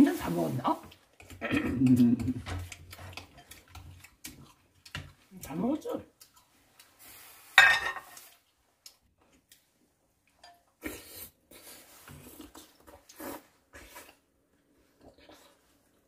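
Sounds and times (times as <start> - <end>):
mouth sounds: 1.4 - 2.5
slurping from a spoon: 10.8 - 14.2.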